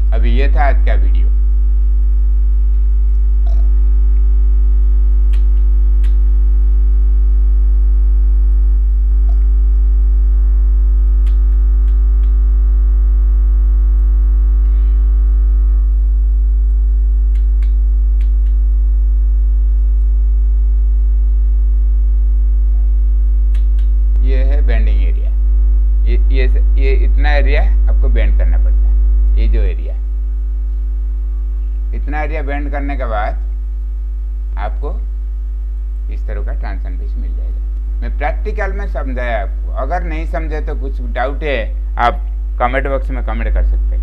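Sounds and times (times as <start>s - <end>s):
electrical mains hum: 0.0s - 44.0s
faint clicks: 5.3s - 6.3s, 11.2s - 12.4s, 17.3s - 18.6s.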